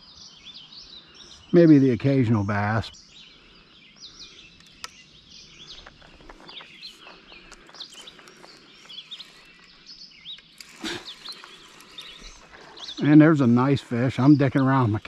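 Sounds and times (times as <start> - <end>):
birds chirping: 0.0 - 15.0
faint clicks: 4.6 - 5.0.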